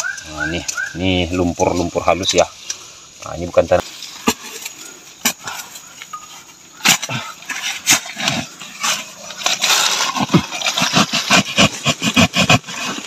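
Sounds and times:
soil crumbling: 0.0 - 13.0
digging tool chopping wet clay: 6.8 - 7.2, 9.5 - 13.0.

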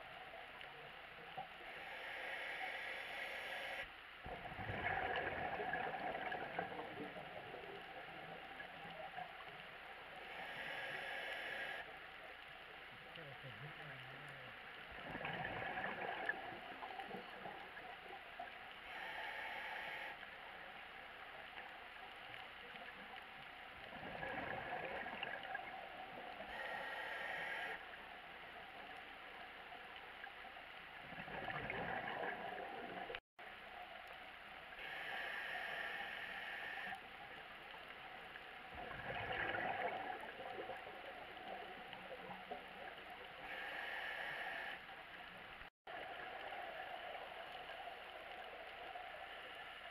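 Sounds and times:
exhaled bubbles gurgling: 1.4 - 11.8, 14.9 - 20.1, 23.7 - 28.0, 30.9 - 33.2, 38.6 - 44.7
regulator inhale hiss: 1.7 - 3.9, 10.3 - 11.9, 18.8 - 20.2, 26.4 - 27.8, 34.8 - 37.0, 43.4 - 44.9.

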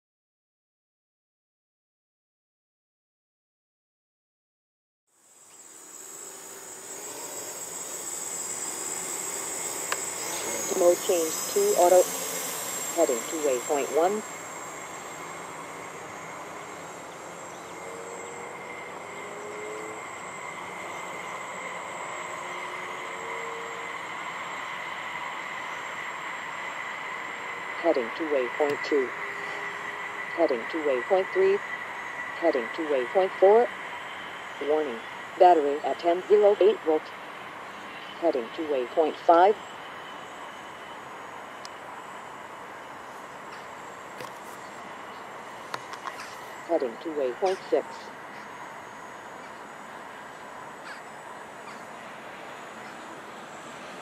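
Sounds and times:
drone motors whining: 5.4 - 36.7.

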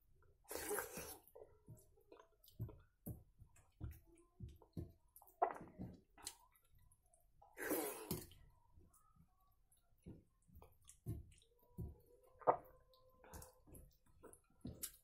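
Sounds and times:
wet slurp of eating: 0.5 - 1.4, 7.5 - 8.4.

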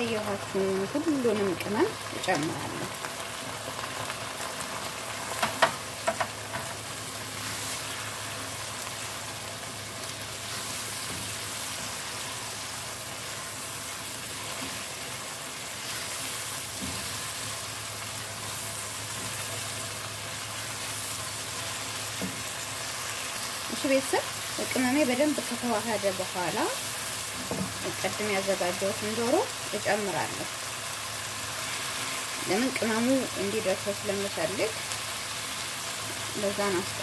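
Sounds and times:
sauce sizzling in a pan: 0.0 - 37.0.

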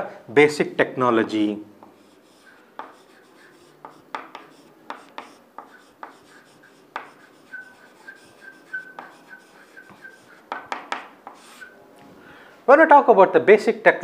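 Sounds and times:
chalk writing on chalkboard: 1.2 - 11.8
faint high squeak: 7.3 - 10.4.

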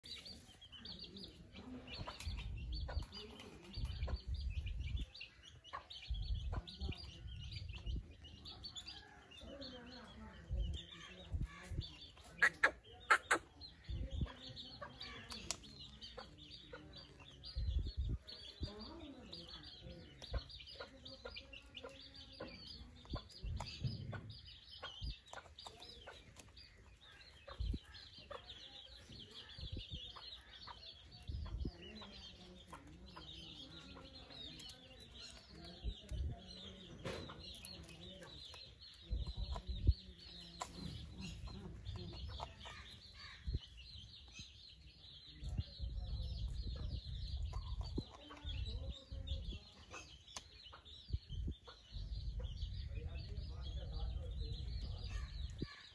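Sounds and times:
birds chirping and chattering: 0.0 - 55.9
clucking calls: 11.0 - 17.3.

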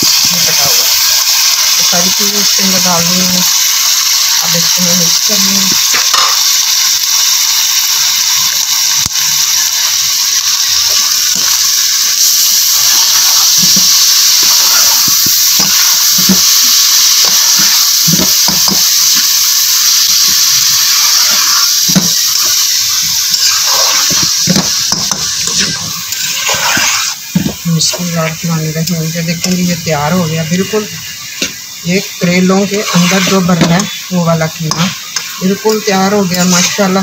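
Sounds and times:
meat sizzling in a frying pan: 0.0 - 37.0
spatula scraping a pan: 23.3 - 27.6, 32.2 - 34.0, 36.4 - 37.0.

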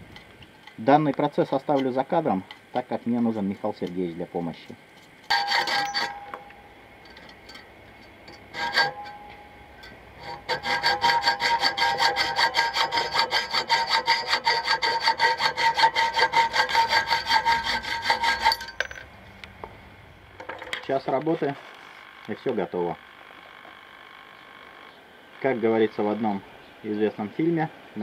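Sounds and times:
hacksaw cutting metal: 5.3 - 6.6, 8.3 - 19.0.

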